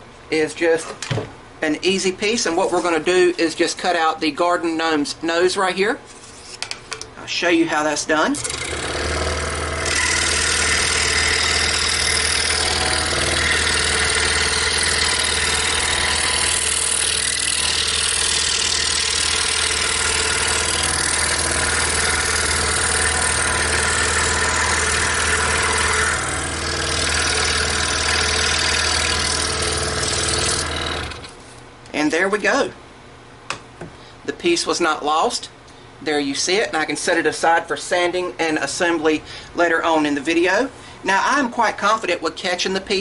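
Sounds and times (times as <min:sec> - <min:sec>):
motor hum: 0:08.3 - 0:31.6
scroll saw cutting plywood: 0:08.4 - 0:31.4.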